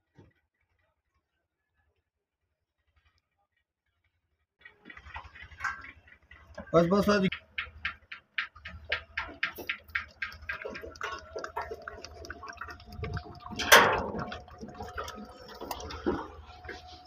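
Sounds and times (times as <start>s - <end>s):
regular ticking: 4.8s - 17.0s
oil splashing and gurgling: 8.6s - 17.0s
low hum: 8.9s - 17.0s.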